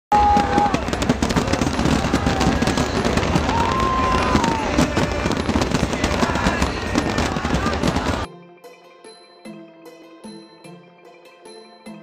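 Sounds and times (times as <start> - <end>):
fireworks crackling: 0.1 - 8.3
gentle chiming music: 8.3 - 12.0.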